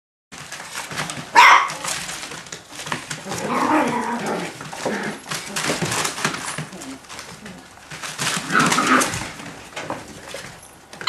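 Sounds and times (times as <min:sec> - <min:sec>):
paws scrabbling on newspaper: 0:00.4 - 0:11.0
puppies barking and yelping: 0:00.9 - 0:02.2, 0:08.0 - 0:09.5.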